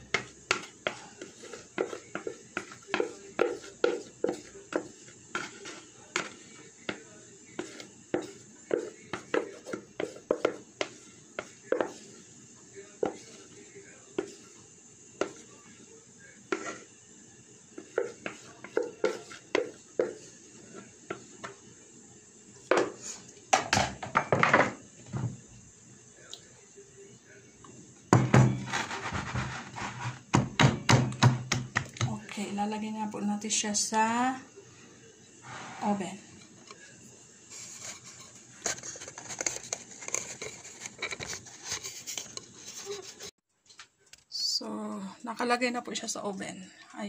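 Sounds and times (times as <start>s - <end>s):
spatula scraping and knocking bowl: 0.0s - 12.2s, 13.0s - 14.6s, 15.2s - 15.5s, 16.5s - 16.9s, 17.8s - 21.6s, 28.2s - 32.2s, 37.6s - 43.3s
kitchen items being handled: 28.2s - 32.3s, 35.4s - 36.9s, 37.5s - 43.9s.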